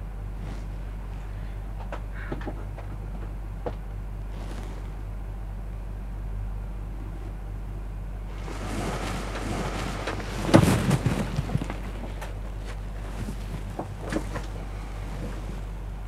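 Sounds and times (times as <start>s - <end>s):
steady low hum: 0.0s - 16.0s
rushing noise: 8.3s - 12.3s
knocks and thumps: 8.4s - 14.6s.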